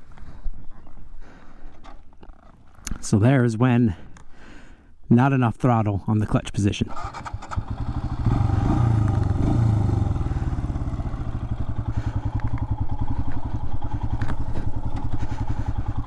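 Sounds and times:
motorcycle engine idling: 0:07.0 - 0:16.0.

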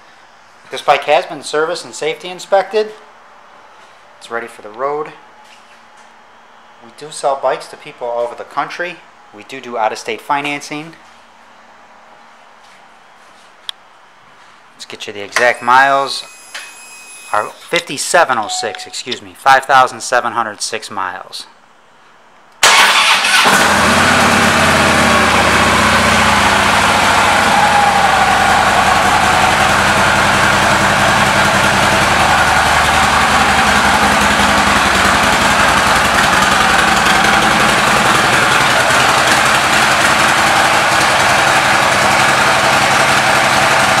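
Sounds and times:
motorcycle engine idling: 0:23.5 - 0:44.0.

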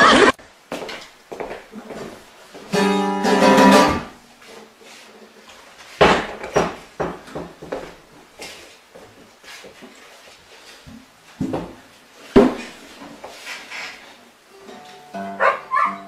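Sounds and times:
acoustic guitar chord ringing: 0:02.7 - 0:04.2.

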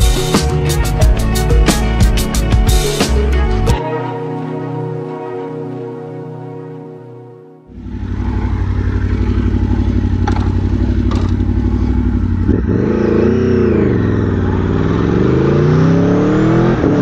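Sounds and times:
motorcycle engine revving: 0:07.7 - 0:17.0.

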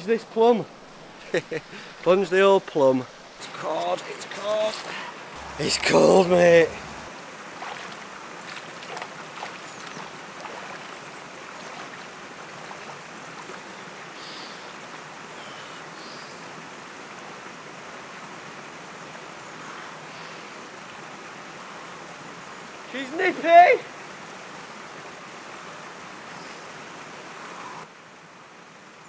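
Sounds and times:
stream rushing: 0:00.0 - 0:29.0
legs splashing through water: 0:04.7 - 0:13.8.

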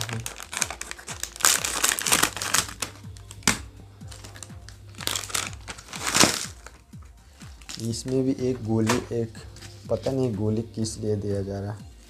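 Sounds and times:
scissors snipping plastic: 0:00.0 - 0:03.6
plastic packet crinkling: 0:00.0 - 0:06.8
background music with beat: 0:00.0 - 0:12.0.

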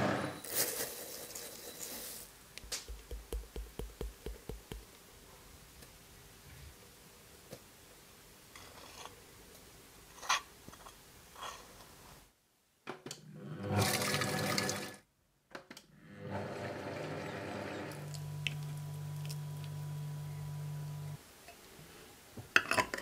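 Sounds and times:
food processor motor whirring: 0:16.0 - 0:21.2.

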